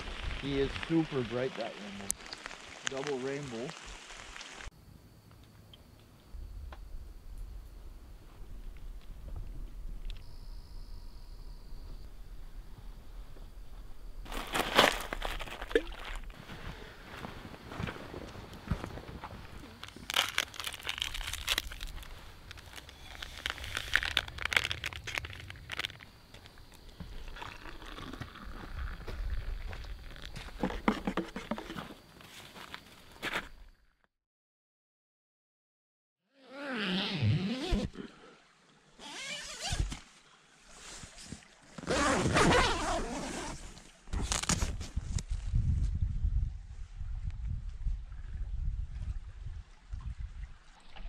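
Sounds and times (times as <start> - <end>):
packet crinkling and rustling: 14.3 - 16.4, 19.6 - 26.5
tent zipper pulled open: 36.3 - 38.1, 39.0 - 40.0, 41.8 - 45.0.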